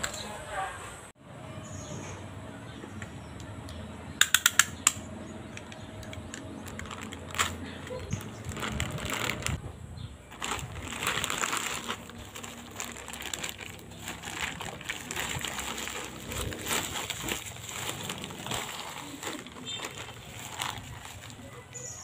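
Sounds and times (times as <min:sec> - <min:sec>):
plastic tearing: 0:06.0 - 0:09.6, 0:10.3 - 0:21.7
plastic bag rustling and crinkling: 0:06.3 - 0:09.6, 0:10.2 - 0:22.0.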